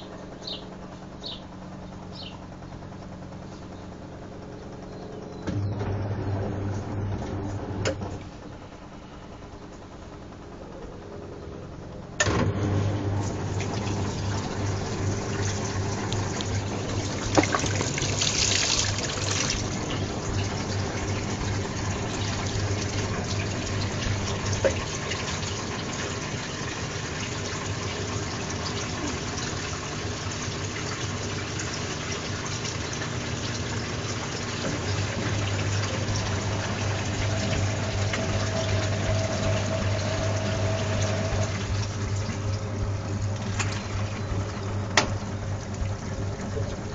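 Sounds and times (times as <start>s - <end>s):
low steady hum: 0.0s - 46.9s
water rushing into washing machine: 12.2s - 46.9s.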